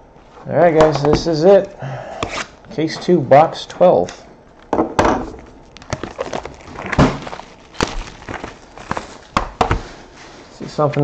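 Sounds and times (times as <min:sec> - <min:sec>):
plastic wrap crinkling: 0:05.4 - 0:10.1.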